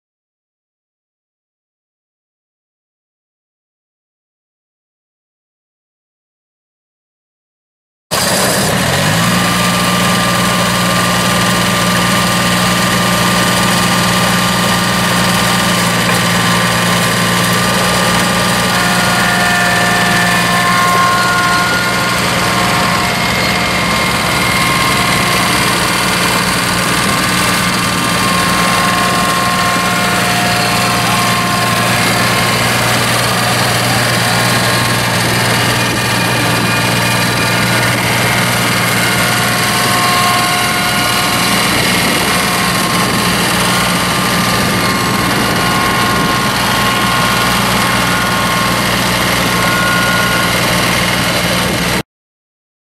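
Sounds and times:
diesel mower engine running: 0:08.1 - 0:52.0
faint whining tones: 0:16.1 - 0:51.8.

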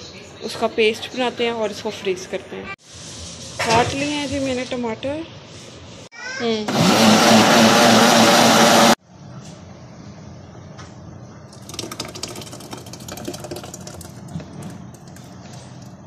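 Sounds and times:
food chopper motor grinding: 0:06.7 - 0:09.0.

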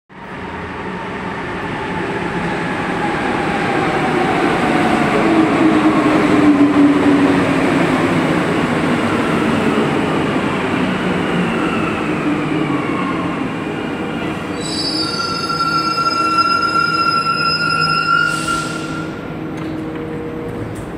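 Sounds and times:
train whining tones gliding down: 0:01.7 - 0:20.4
steady high tones: 0:14.7 - 0:19.2.

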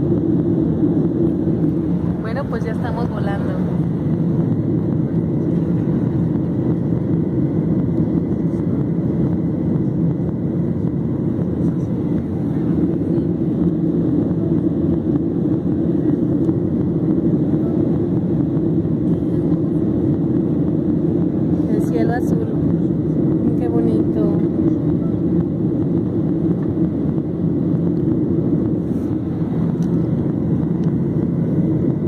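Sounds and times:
airliner cabin drone: 0:00.0 - 0:32.0.

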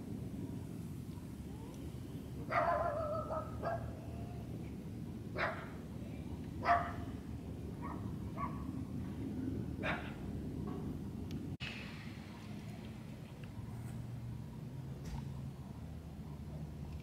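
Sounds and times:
steady low rumble: 0:00.0 - 0:17.0
dog barking: 0:02.5 - 0:04.0, 0:05.4 - 0:05.8, 0:06.6 - 0:07.1, 0:07.8 - 0:08.7, 0:09.8 - 0:10.2.

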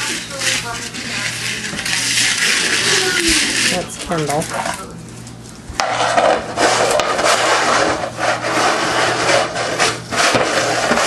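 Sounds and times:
scraping on wooden floor: 0:05.8 - 0:11.0.

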